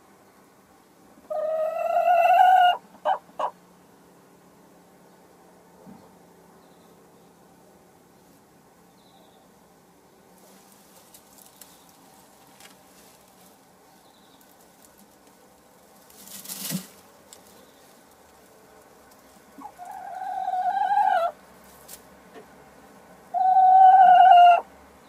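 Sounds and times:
hen calling: 1.3 - 3.6, 19.6 - 21.4, 23.3 - 24.7
rustling: 10.3 - 20.2, 21.6 - 22.2.

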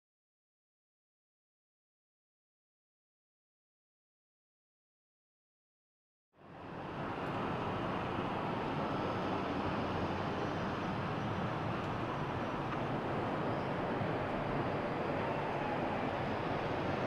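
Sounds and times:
vehicle rumble and road noise: 6.4 - 17.0.

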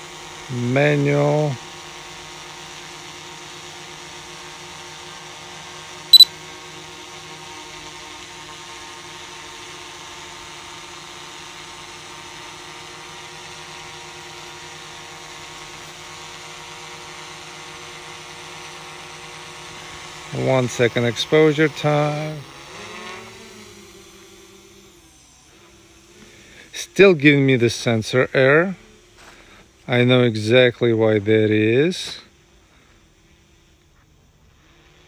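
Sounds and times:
drone propellers humming: 19.4 - 35.0.

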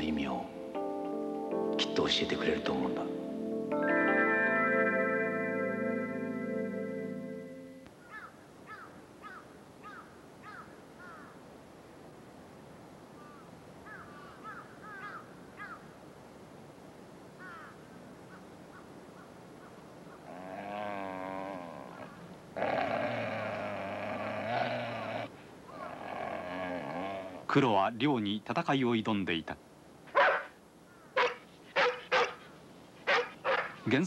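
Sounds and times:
faint outdoor hiss: 0.0 - 34.0
crows cawing: 8.0 - 11.4, 13.2 - 15.9, 17.4 - 21.3, 30.2 - 32.4.

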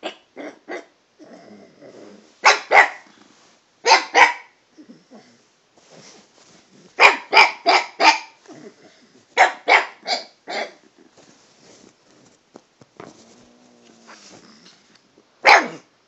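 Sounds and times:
dog barking: 2.4 - 3.1, 3.8 - 4.6, 7.0 - 8.4, 9.4 - 10.8, 15.4 - 15.9.

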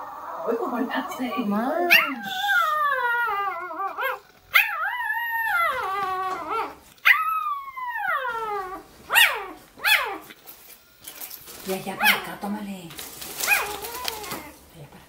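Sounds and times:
puppy howling: 0.0 - 10.3, 13.4 - 14.6
puppy yelps: 1.3 - 10.3, 13.4 - 14.6.

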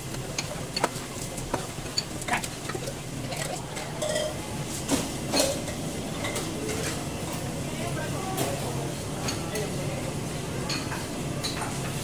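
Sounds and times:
ceramic bowls and utensils clinking: 0.0 - 7.3, 10.6 - 12.0.

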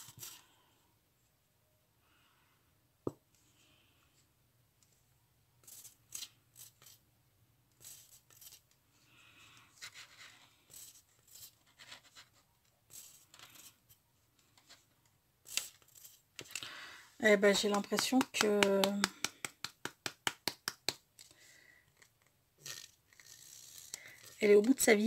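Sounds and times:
glue bottle sputtering air: 22.6 - 24.5.

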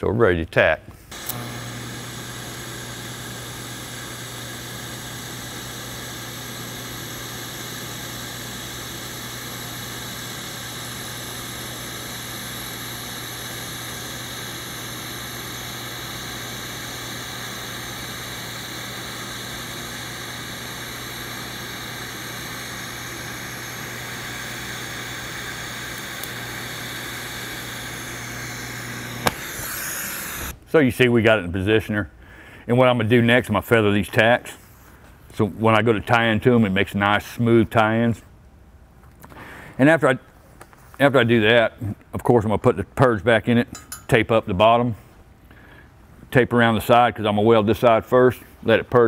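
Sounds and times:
welding arc hissing: 1.1 - 30.6.

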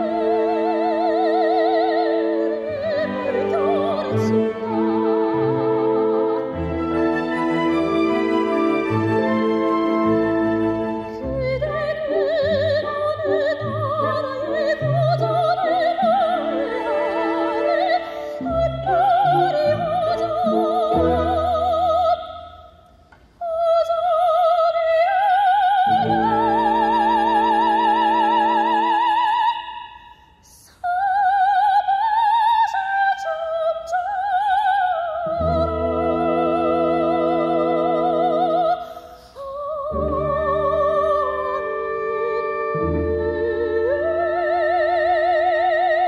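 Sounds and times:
operatic soprano singing: 0.0 - 22.8, 23.4 - 46.0
orchestral chords: 2.0 - 15.4, 35.3 - 38.6.

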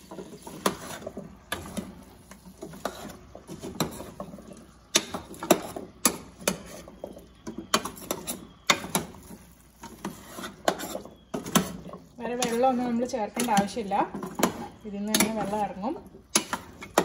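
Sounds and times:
spoon clinking against a pot: 3.7 - 17.0.

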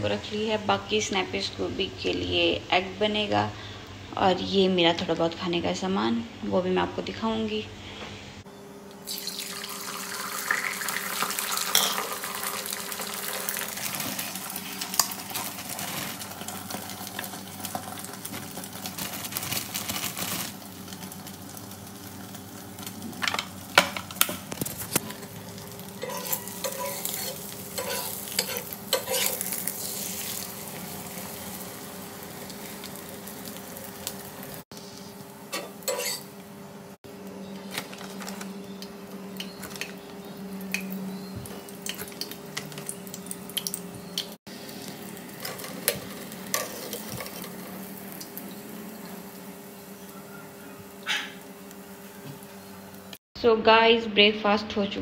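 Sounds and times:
food sizzling in pan: 9.0 - 36.4, 40.7 - 53.2
utensils scraping cookware: 26.0 - 30.2, 35.5 - 36.3.

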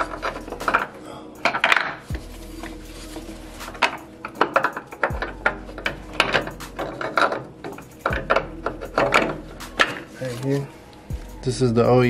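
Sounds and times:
metal tools clinking and knocking: 0.0 - 2.1, 3.7 - 10.1.

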